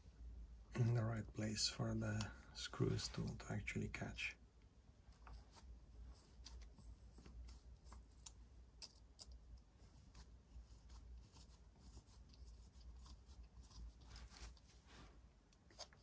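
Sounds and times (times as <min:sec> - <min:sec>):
plastic parts clicking and rubbing: 0:06.2 - 0:10.3.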